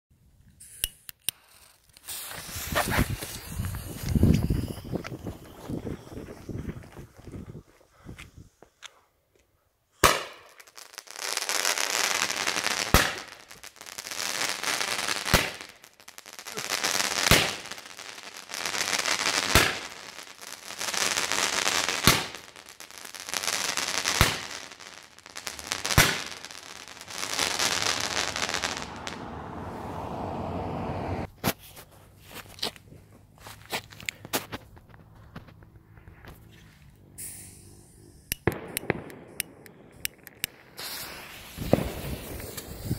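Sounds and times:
hiss of burning sparks: 0.6s - 5.0s, 37.2s - 38.2s, 40.6s - 42.9s
roman candle shots: 0.6s - 7.3s, 37.2s - 42.9s.

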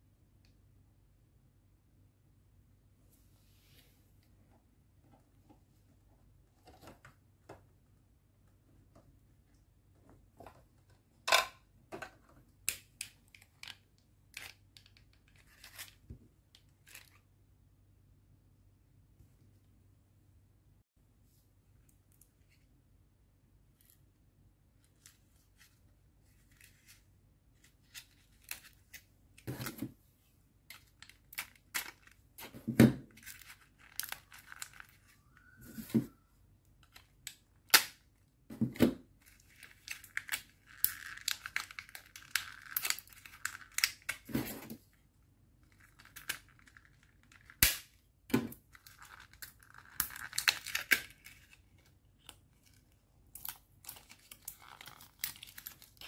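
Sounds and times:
plastic packaging crinkling: 33.1s - 35.6s, 39.2s - 44.4s, 48.6s - 51.8s, 52.6s - 56.0s.

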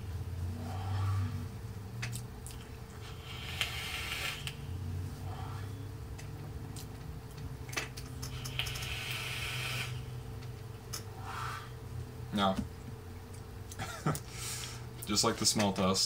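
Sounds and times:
airy vapour exhales: 3.0s - 5.9s, 8.3s - 10.2s, 14.3s - 14.9s.

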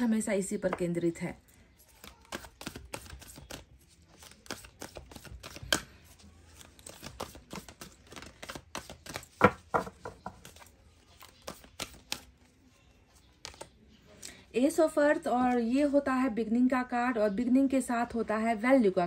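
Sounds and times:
cards being shuffled by hand: 1.9s - 13.8s.

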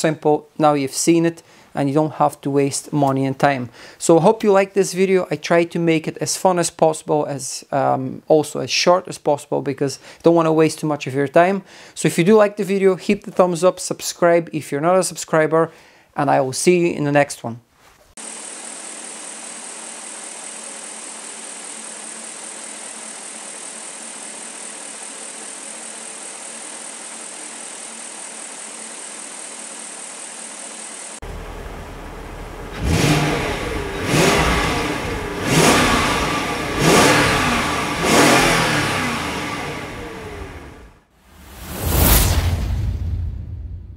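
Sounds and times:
engine idling and revving: 30.8s - 41.0s.

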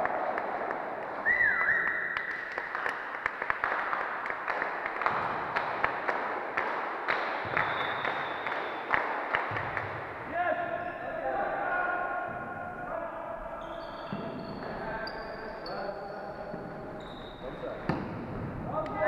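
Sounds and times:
steady hall noise: 0.0s - 19.0s
hand clapping: 2.1s - 10.2s.

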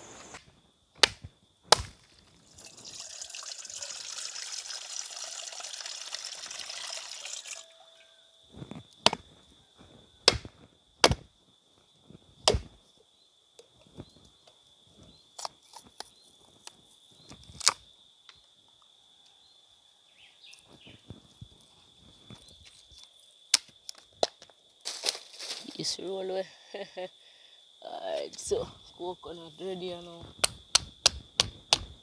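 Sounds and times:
rushing hiss: 0.0s - 0.4s
high insect drone: 0.0s - 32.0s
coconut being struck: 1.0s - 2.1s, 10.2s - 11.2s, 12.5s - 12.7s
machete chops: 1.0s - 2.1s, 10.2s - 11.3s, 12.5s - 12.8s.

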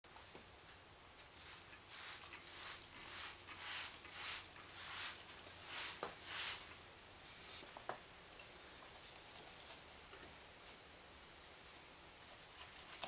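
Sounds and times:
spray bottle hissing sprays: 1.2s - 6.7s.

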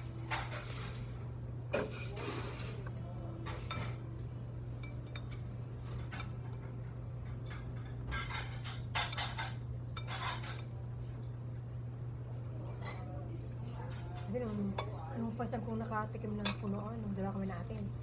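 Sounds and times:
low room hum: 0.0s - 18.0s
plates and cutlery clinking: 0.2s - 1.1s, 1.7s - 10.8s, 12.6s - 15.1s.

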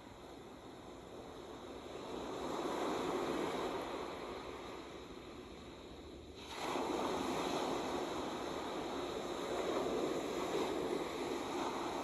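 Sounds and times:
waves breaking on beach: 6.4s - 12.0s.

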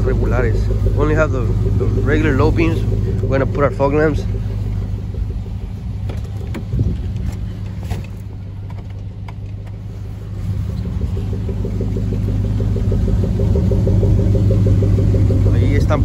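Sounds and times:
truck engine idling: 0.0s - 16.0s
sharp clicks and knocks: 6.0s - 9.9s.

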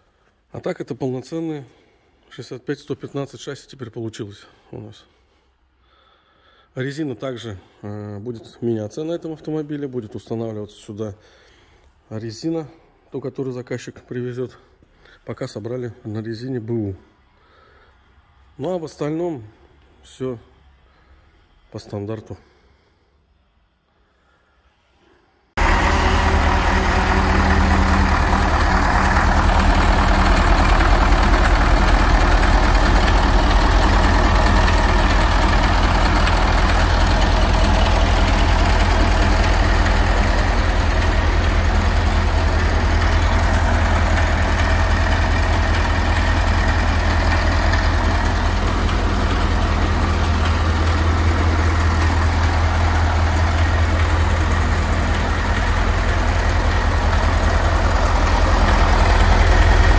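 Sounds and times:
truck diesel engine idling: 25.6s - 59.9s.

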